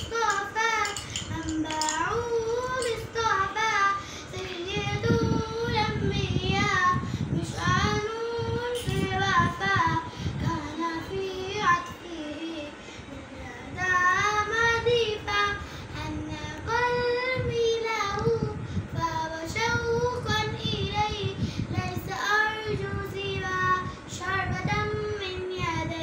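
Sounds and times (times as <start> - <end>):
girl singing unaccompanied: 0.0 - 26.0.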